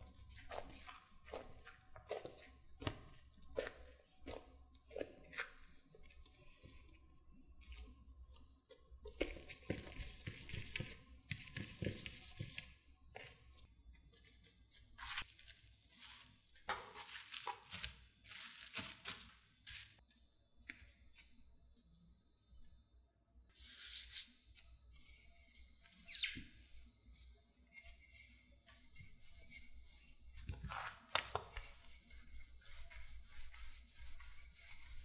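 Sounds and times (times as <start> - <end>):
hands kneading sticky dough: 0.0 - 13.6, 14.5 - 20.0, 28.8 - 35.0.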